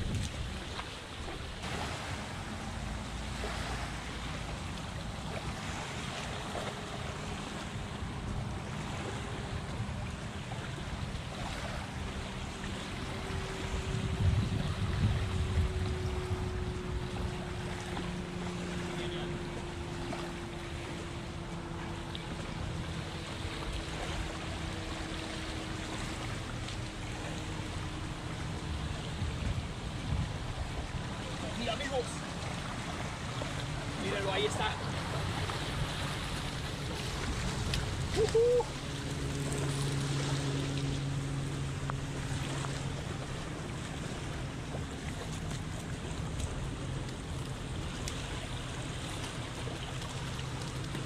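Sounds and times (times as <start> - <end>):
wind on microphone: 0.0 - 1.9, 13.0 - 18.1, 28.4 - 31.2
waves lapping on sand: 0.0 - 51.0
low steady hum: 1.5 - 51.0.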